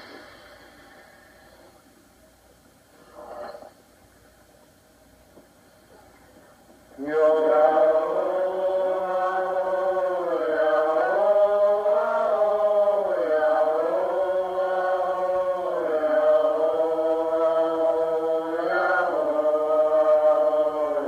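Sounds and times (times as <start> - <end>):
meditative vocal chanting: 6.9 - 21.0.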